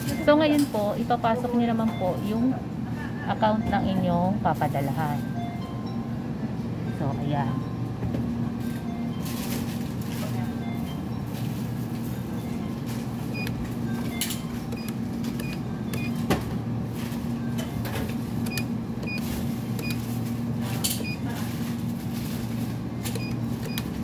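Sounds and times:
steady low hum: 0.0s - 24.0s
electronic keypad beeps: 10.4s - 11.4s, 12.1s - 16.3s, 18.4s - 20.0s, 21.0s - 21.3s, 23.0s - 24.0s.

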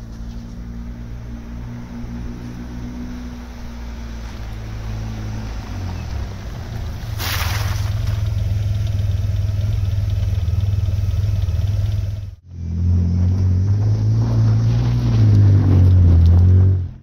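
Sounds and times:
car engine exhaust drone: 0.0s - 17.0s.

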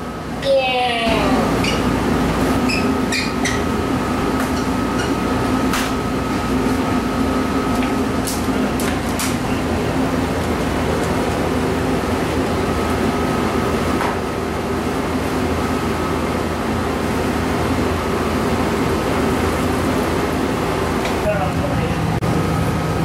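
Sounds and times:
kitchen machine hum: 0.0s - 23.0s.

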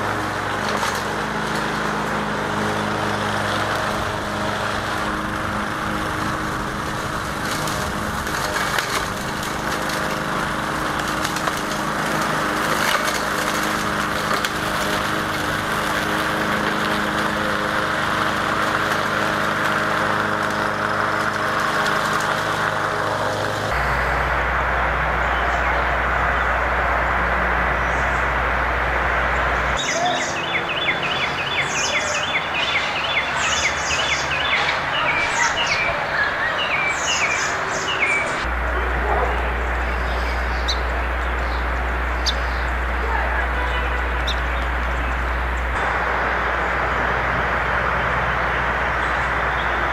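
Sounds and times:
lawn mower engine running: 0.0s - 49.9s
songbird chirping and trilling: 29.8s - 45.7s.

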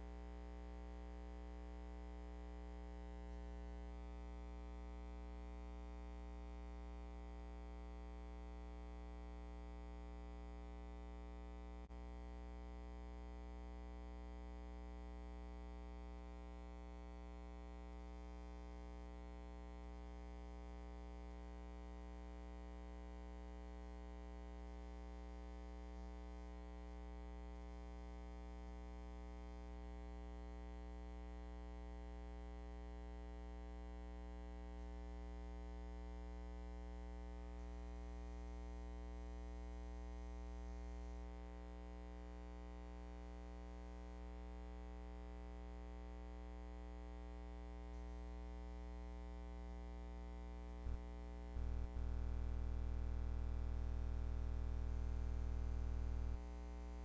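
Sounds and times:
electrical hum and buzz: 47.1s - 57.0s.

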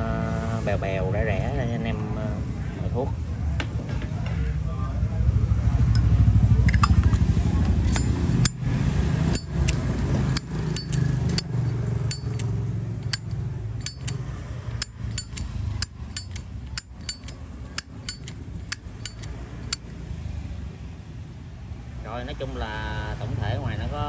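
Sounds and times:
lighter lid clicking open and shut: 6.7s - 7.2s, 10.4s - 14.2s, 14.8s - 19.3s.

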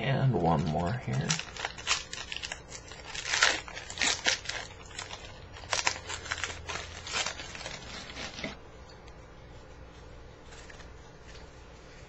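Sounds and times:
foil wrapper tearing and crinkling: 0.4s - 8.6s.

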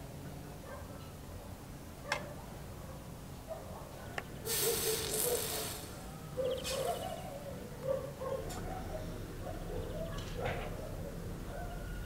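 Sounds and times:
soldering iron sizzling: 4.5s - 6.0s.

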